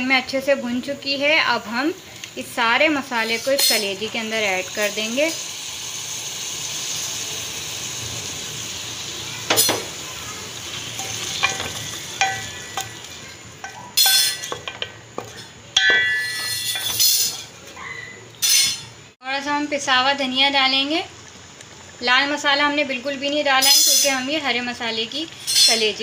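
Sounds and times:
liver sizzling in oil: 0.1 - 17.6, 18.9 - 26.0
spoon scraping and clinking pot: 3.2 - 4.1, 10.7 - 17.8.

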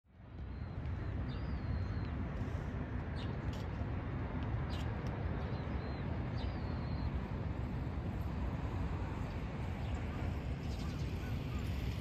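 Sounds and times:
small birds chirping: 0.4 - 3.8, 4.6 - 7.6, 9.3 - 12.0.

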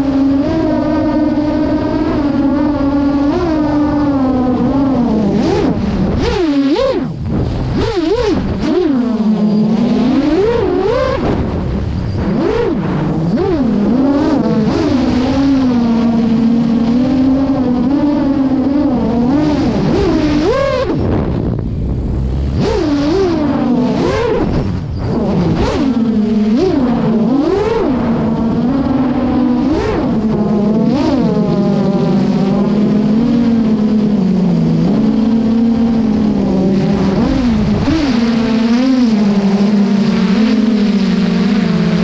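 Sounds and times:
drone propellers whining: 0.0 - 42.0
wind rushing past microphone: 1.5 - 32.8.

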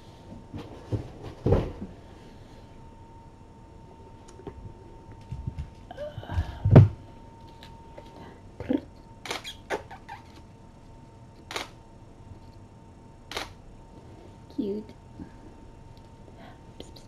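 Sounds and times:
camera shutter clicks: 13.3 - 13.6.

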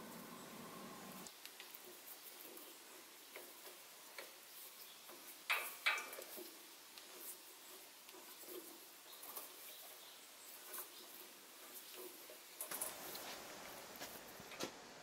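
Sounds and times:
faint metallic clicks and ticks: 1.2 - 13.2.

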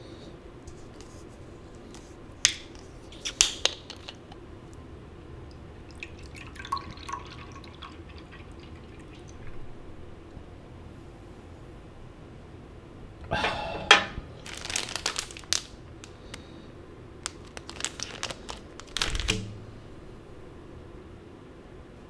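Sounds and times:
drink poured into a glass: 5.8 - 9.6.

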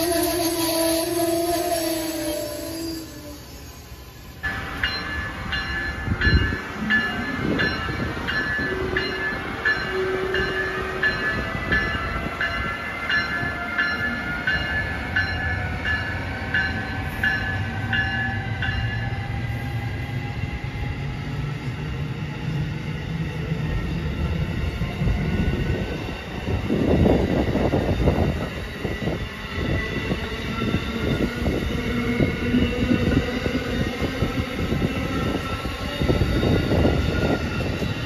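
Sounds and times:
train bell ringing: 0.0 - 19.8
train rumble: 0.0 - 38.0.

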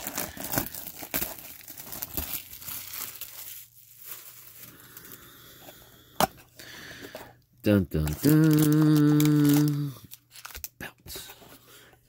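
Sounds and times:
plastic shrink wrap crinkling: 0.0 - 5.2, 7.9 - 10.8.

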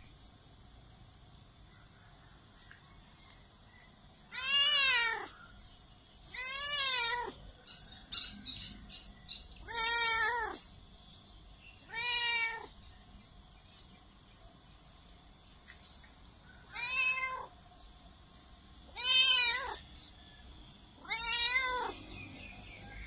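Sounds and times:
cat meowing: 4.3 - 5.3, 6.4 - 7.4, 9.6 - 10.6, 11.9 - 12.7, 16.7 - 17.5, 19.0 - 19.8, 21.0 - 22.0.

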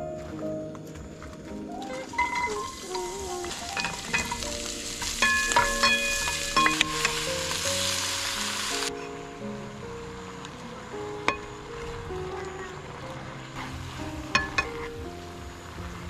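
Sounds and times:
vegetables sizzling in a pan: 1.8 - 9.1, 11.2 - 16.0.

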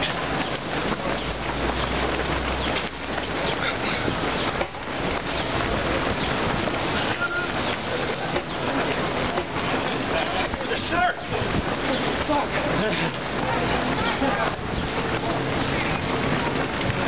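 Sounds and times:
runners' footsteps on asphalt: 0.0 - 17.0
scattered voices: 3.4 - 17.0.

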